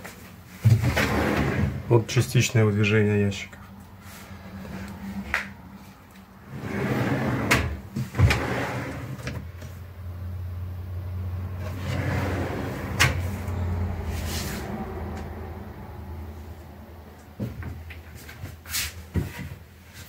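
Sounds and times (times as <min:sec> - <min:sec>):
drawer runners rolling rumble: 0:00.6 - 0:02.0, 0:06.4 - 0:09.6, 0:11.6 - 0:13.4.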